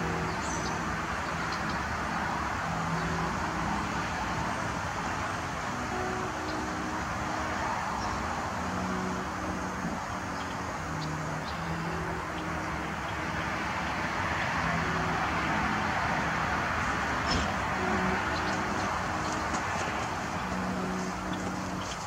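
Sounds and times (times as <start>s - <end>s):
low humming tones: 0.0s - 22.0s
road traffic noise: 0.0s - 22.0s.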